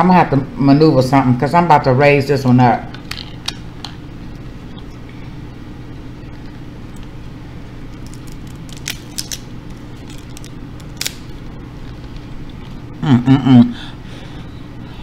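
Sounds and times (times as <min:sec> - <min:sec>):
steady low hum: 0:00.0 - 0:15.0
crab shells cracking: 0:07.9 - 0:11.4.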